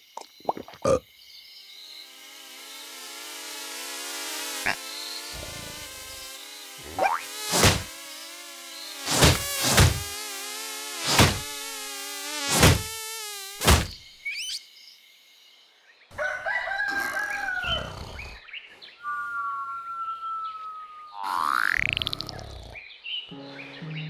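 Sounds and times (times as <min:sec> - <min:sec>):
buzzing insect drone: 0:00.9 - 0:14.5, 0:16.6 - 0:18.5, 0:19.4 - 0:23.0
loud whacks: 0:07.5 - 0:07.9, 0:09.0 - 0:10.1, 0:11.0 - 0:11.6, 0:12.5 - 0:12.9, 0:13.6 - 0:14.0
rooster crowing: 0:16.1 - 0:18.1
steady whistle-like note: 0:19.0 - 0:21.2.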